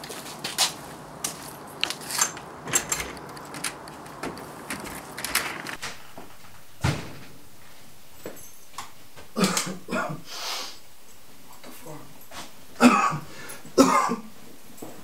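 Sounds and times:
footsteps on garden path: 0.0 - 2.7
front door opening: 0.6 - 7.6.

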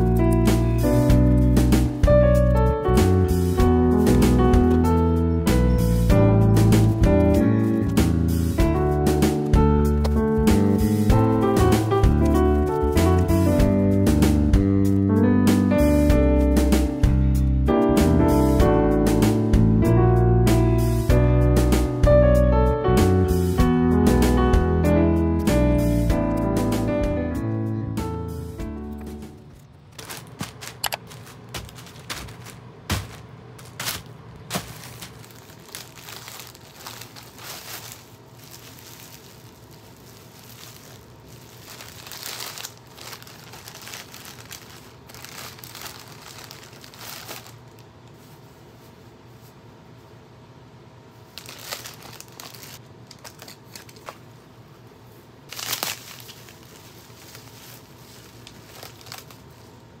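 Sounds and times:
packaging crinkling and rustling: 4.4 - 5.0, 28.9 - 48.4, 51.3 - 54.4, 55.5 - 60.0.

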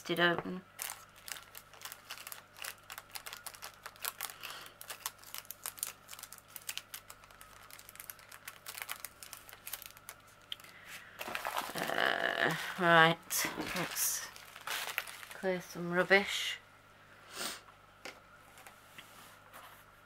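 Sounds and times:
plastic rustle: 0.8 - 16.1.

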